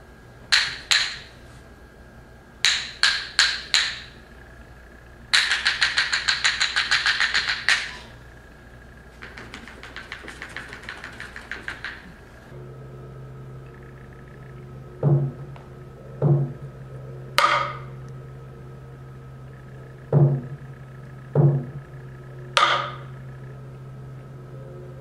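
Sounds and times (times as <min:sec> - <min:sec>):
wooden percussion clacks: 0:00.5 - 0:01.3, 0:02.6 - 0:04.2, 0:05.3 - 0:08.1, 0:09.2 - 0:12.2, 0:17.4 - 0:17.9, 0:22.6 - 0:23.1.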